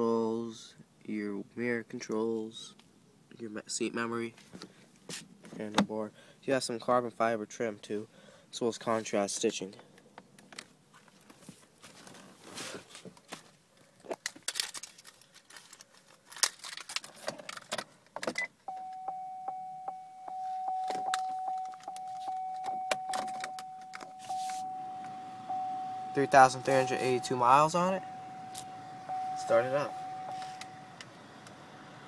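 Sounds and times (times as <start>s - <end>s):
car warning chime: 18.4s - 31.8s.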